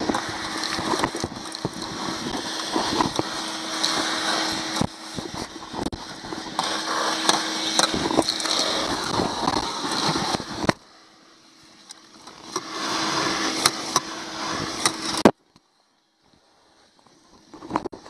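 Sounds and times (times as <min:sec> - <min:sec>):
grit clicking up hose: 0:00.0 - 0:10.8
vacuum cleaner rushing: 0:00.0 - 0:10.8, 0:11.4 - 0:15.3.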